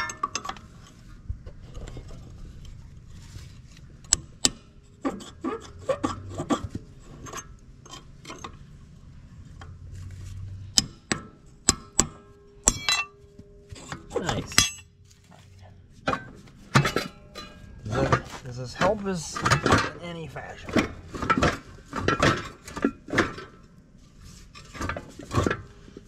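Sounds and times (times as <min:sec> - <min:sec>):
metal tools clinking: 0:12.6 - 0:14.9, 0:15.5 - 0:23.6.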